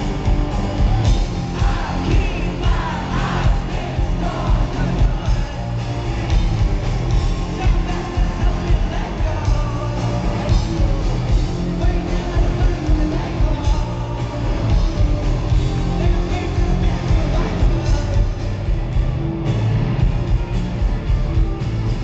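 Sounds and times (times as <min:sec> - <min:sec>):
rock band playing live: 0:00.0 - 0:22.0
person singing: 0:07.5 - 0:18.5.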